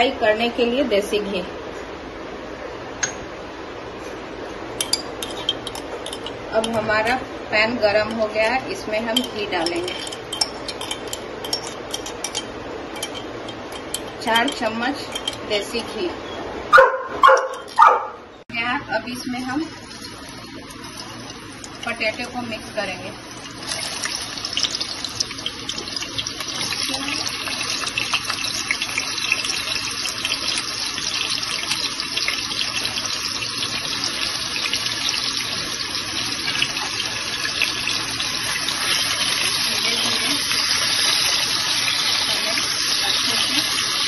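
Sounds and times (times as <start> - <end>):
potato slices sizzling in oil: 19.0 - 44.0.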